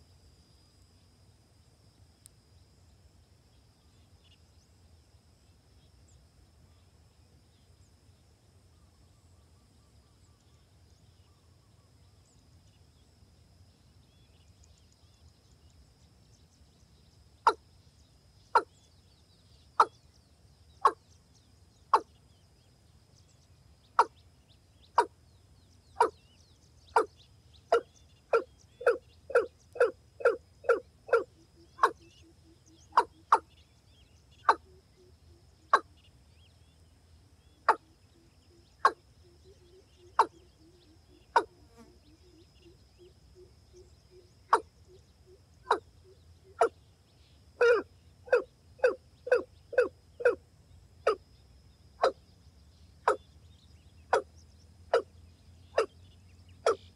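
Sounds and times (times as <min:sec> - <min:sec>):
faint high whine: 0:00.0 - 0:56.9
rail bird calling: 0:26.0 - 0:26.2, 0:26.9 - 0:27.1, 0:27.7 - 0:33.5, 0:34.4 - 0:36.0, 0:37.6 - 0:46.8, 0:47.6 - 0:50.4, 0:55.7 - 0:55.9.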